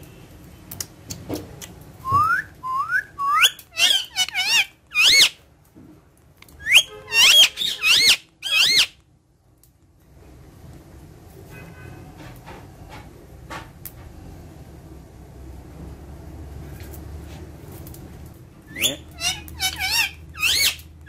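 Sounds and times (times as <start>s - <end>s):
parakeet whistling: 2.1s - 5.4s, 6.6s - 9.0s, 18.7s - 20.8s.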